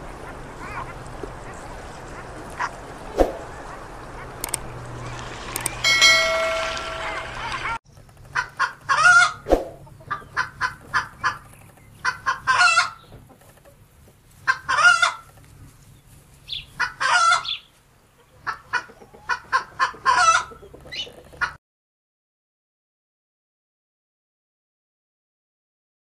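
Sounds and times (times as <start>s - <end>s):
chickens clucking: 0.0s - 21.6s
chicken drawn-out call: 3.4s - 13.5s, 14.5s - 15.3s, 16.6s - 21.6s.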